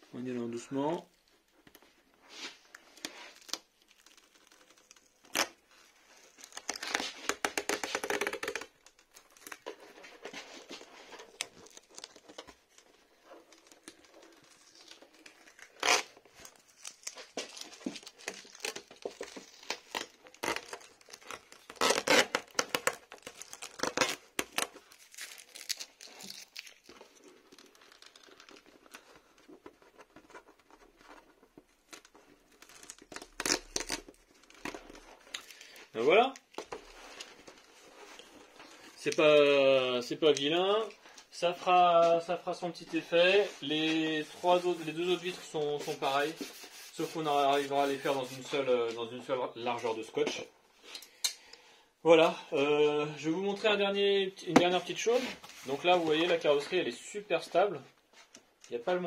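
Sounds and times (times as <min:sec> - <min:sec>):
tape peeling off plastic: 0:02.4 - 0:39.2.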